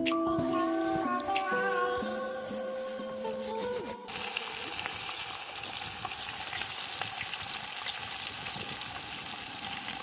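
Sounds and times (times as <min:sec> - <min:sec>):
fish sizzling in a pan: 0:04.1 - 0:10.0
wood fire crackling: 0:04.1 - 0:10.0.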